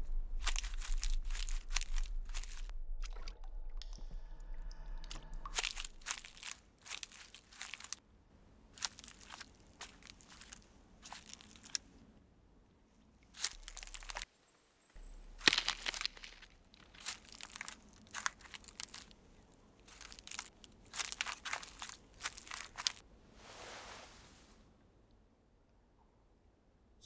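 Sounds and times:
footsteps crunching on forest floor: 0:00.1 - 0:02.7, 0:05.5 - 0:08.0, 0:08.8 - 0:11.8, 0:13.4 - 0:14.3, 0:15.0 - 0:23.0.

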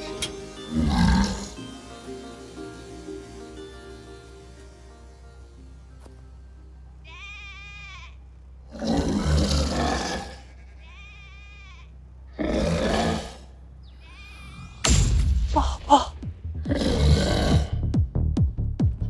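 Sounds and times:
steady low hum: 0:00.0 - 0:18.1
sheep bleating: 0:07.0 - 0:08.3, 0:09.2 - 0:12.0.

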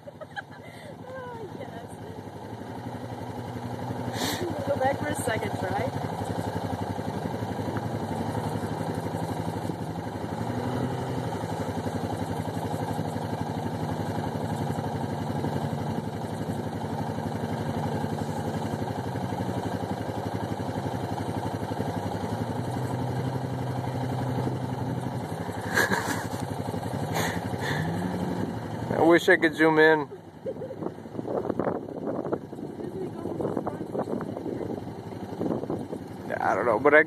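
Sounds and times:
distant car engine revving: 0:00.0 - 0:37.0.

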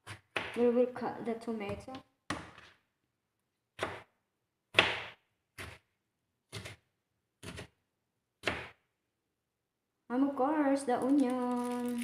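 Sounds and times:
knife cutting on plastic board: 0:04.7 - 0:05.9, 0:06.5 - 0:07.8.

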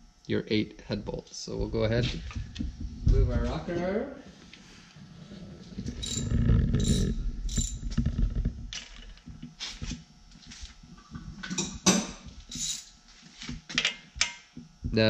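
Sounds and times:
low handling rumble: 0:01.6 - 0:03.7
metallic clinks of hand tools: 0:05.9 - 0:07.8, 0:12.5 - 0:12.9.

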